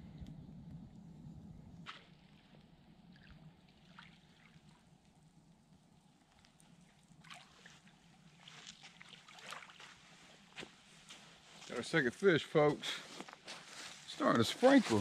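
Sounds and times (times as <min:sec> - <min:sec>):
fish splashing in water: 0:01.8 - 0:05.0, 0:06.4 - 0:10.6.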